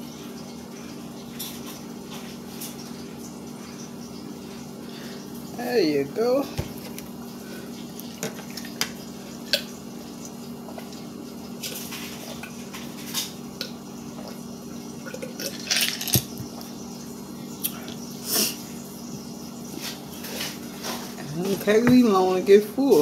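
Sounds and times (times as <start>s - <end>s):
low room hum: 0.0s - 23.0s
ice cubes clinking in a glass: 15.5s - 16.3s.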